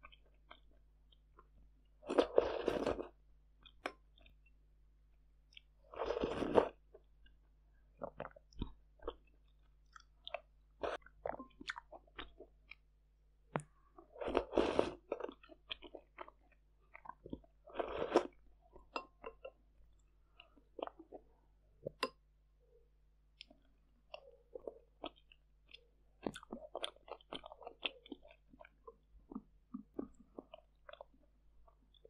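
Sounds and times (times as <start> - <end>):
slurping from a spoon: 2.1 - 3.2, 5.9 - 6.8, 14.2 - 16.1, 17.7 - 18.9
wet chewing and mouth clicks: 8.0 - 12.9, 13.5 - 22.2, 23.3 - 32.0.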